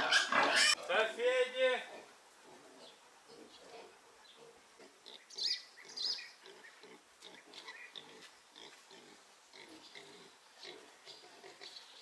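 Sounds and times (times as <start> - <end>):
piglets grunting: 0.0 - 0.8
piglets squealing: 0.0 - 0.8.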